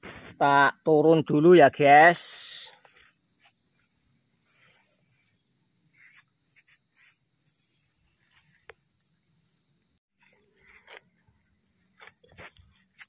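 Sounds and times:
high-pitched insect trilling: 0.0 - 13.0
scuffs and rustles on tree bark: 2.7 - 8.8, 10.2 - 13.0.

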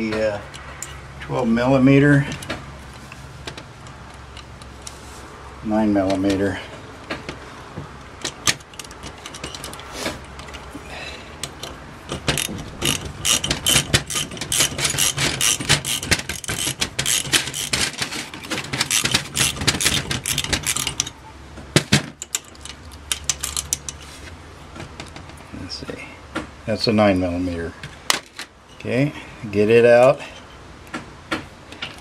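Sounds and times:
socket ratchet clicking: 11.4 - 21.2.

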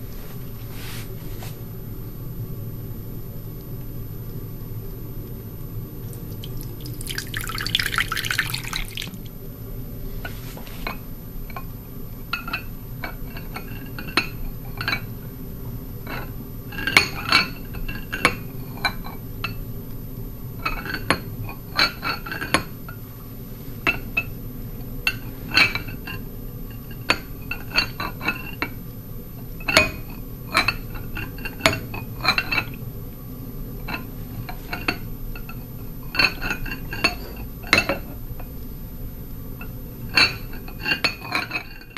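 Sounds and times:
liquid pouring into glass bowl: 6.0 - 9.3.

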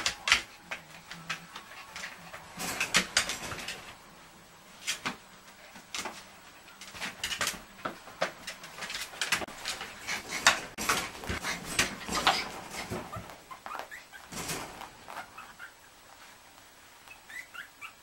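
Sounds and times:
puppies squeaking and whimpering: 12.2 - 14.3, 15.0 - 15.9, 17.1 - 18.0.

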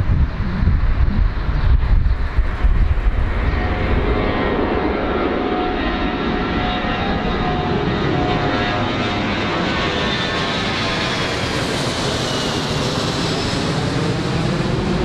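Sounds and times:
jet engines roaring at take-off: 0.0 - 15.0.

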